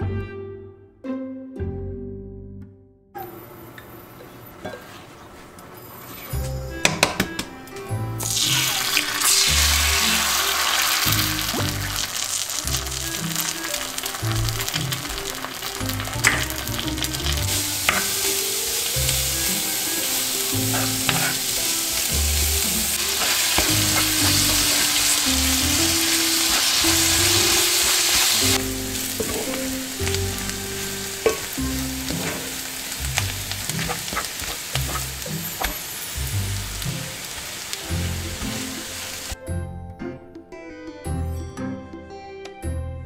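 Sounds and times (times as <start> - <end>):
food sizzling in a skillet: 8.2 - 39.4.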